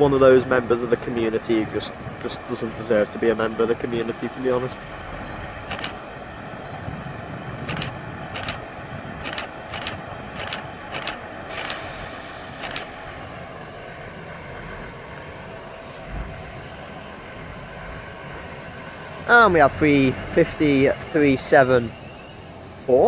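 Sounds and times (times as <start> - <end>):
sharp clicks: 5.7 - 6.0, 7.6 - 8.6, 9.2 - 11.9, 12.6 - 13.0
diesel train engine idling: 7.7 - 23.0.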